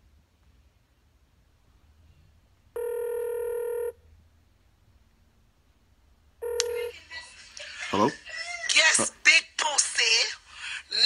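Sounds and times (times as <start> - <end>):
faint low hum: 0.0 - 11.0
telephone ringback tone: 2.8 - 4.0, 6.4 - 6.9.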